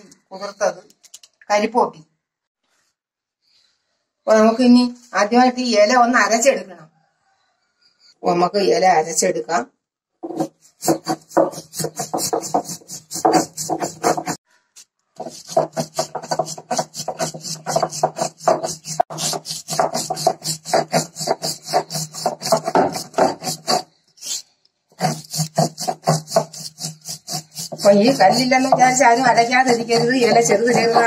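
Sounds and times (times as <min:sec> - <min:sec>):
stone scraping on stone: 0:10.2 - 0:14.4, 0:15.2 - 0:31.0.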